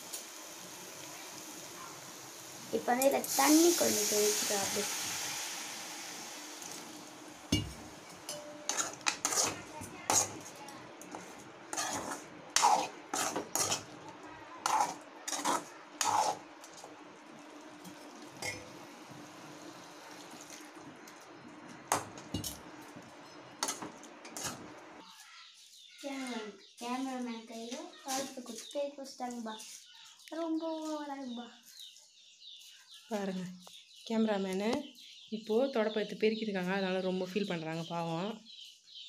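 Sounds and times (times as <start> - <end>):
oil sizzling: 0.0 - 25.1
metal spoon scraping a pan: 7.5 - 14.0, 14.6 - 16.9, 23.2 - 24.7.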